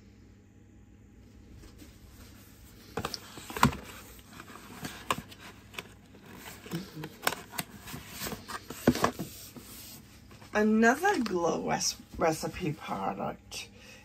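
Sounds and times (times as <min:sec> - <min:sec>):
packaging taps and clicks: 0:04.8 - 0:09.3.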